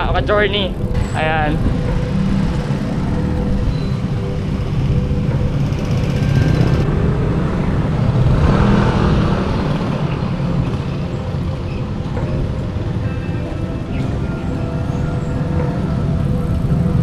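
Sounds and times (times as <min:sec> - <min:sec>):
road and traffic noise: 0:00.0 - 0:17.0
wind rumble on microphone: 0:00.0 - 0:17.0.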